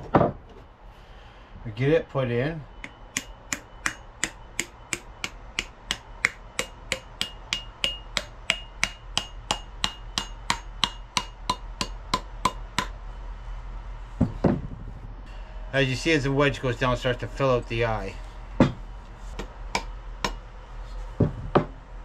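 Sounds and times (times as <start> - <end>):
hammer striking wooden wedge: 2.8 - 13.0, 18.6 - 20.4.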